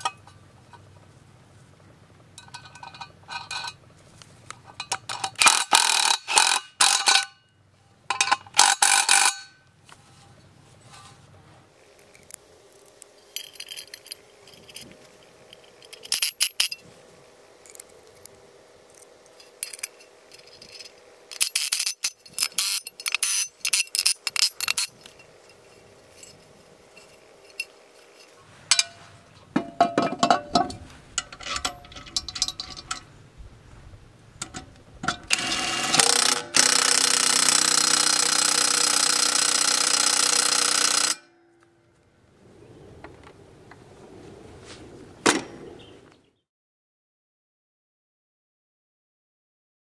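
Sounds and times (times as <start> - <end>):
metal clinks and knocks: 2.4 - 3.8, 8.1 - 9.6, 13.3 - 16.8, 19.4 - 33.1
cordless drill running: 35.3 - 41.2.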